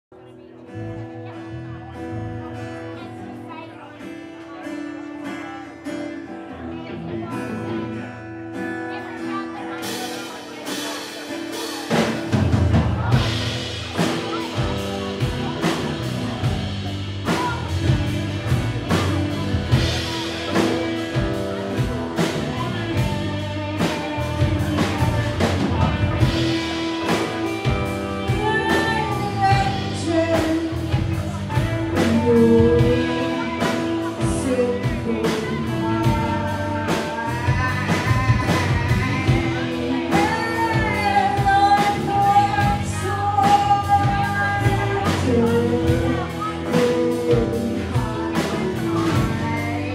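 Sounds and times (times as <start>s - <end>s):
live rock band playing: 0.2s - 49.9s
woman singing: 22.6s - 49.9s.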